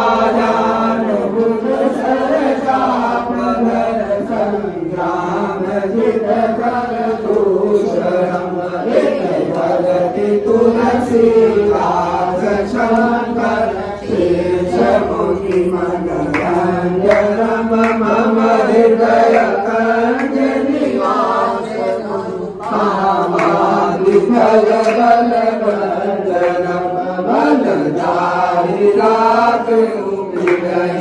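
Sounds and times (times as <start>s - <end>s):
group chanting a hymn: 0.0s - 31.0s.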